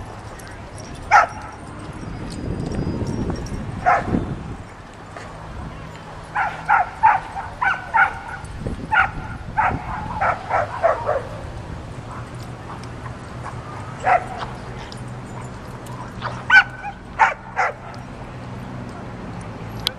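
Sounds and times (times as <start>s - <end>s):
dog barking: 1.1s - 1.5s, 3.8s - 4.1s, 6.4s - 11.4s, 14.0s - 14.5s, 16.2s - 17.9s.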